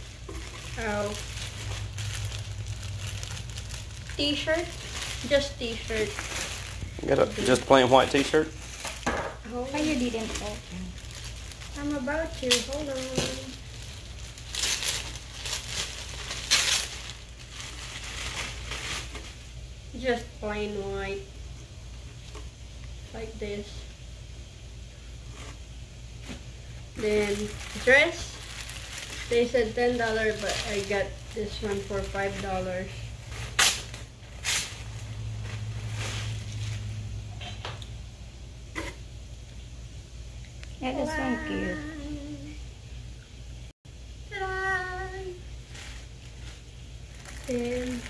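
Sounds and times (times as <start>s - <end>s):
clothing and packaging rustling: 0.0s - 19.6s, 25.2s - 37.2s, 45.6s - 48.0s
plastic bag crinkling and tearing: 0.0s - 19.6s, 26.9s - 37.1s, 45.6s - 48.0s
steady low hum: 0.0s - 48.0s.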